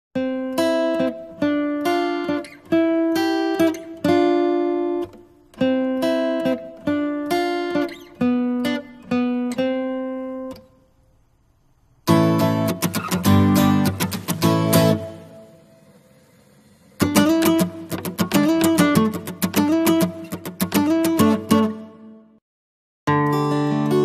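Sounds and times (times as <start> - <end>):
acoustic guitar melody: 0.2 - 11.3, 12.0 - 22.4, 23.1 - 24.0.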